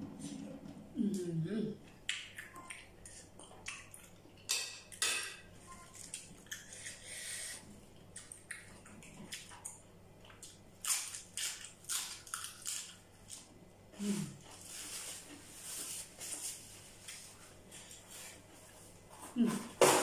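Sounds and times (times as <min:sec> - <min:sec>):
wet chewing and mouth clicks: 0:01.9 - 0:04.4, 0:08.0 - 0:13.4.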